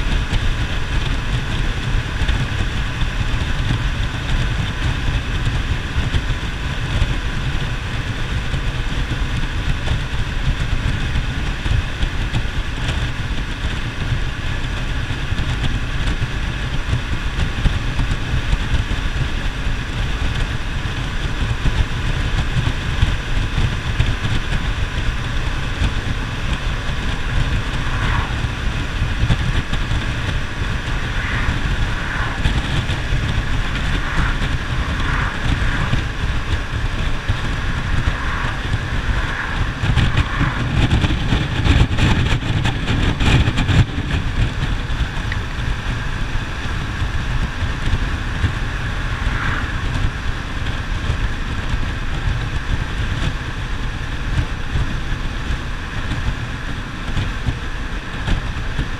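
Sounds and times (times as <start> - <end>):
motorcycle engine running: 0.0 - 58.9
wind buffeting microphone: 0.0 - 58.9
tyre roar: 27.3 - 42.1.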